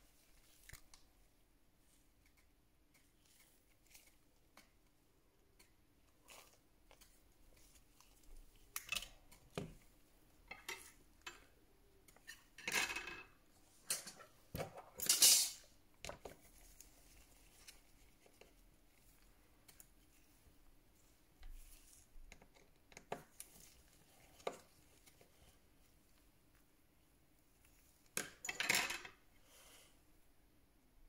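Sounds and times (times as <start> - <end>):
metal tools clinking: 15.0 - 15.6.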